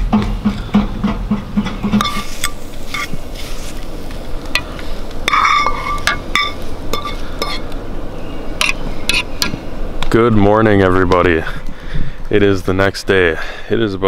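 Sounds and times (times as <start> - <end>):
faint low hiss: 0.0 - 14.0
utensil scraping metal frying pan: 0.3 - 3.9, 4.5 - 7.7.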